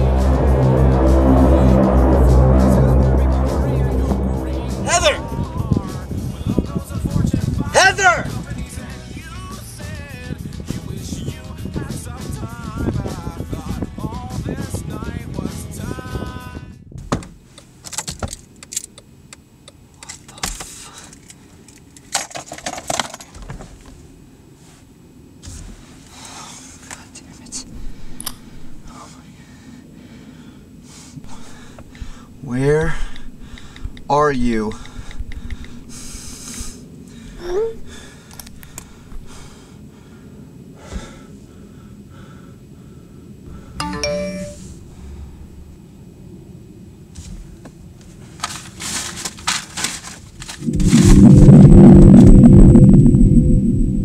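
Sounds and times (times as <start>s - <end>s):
low hum inside car: 0.0s - 11.2s, 23.3s - 54.0s
electronic chime: 43.8s - 44.8s.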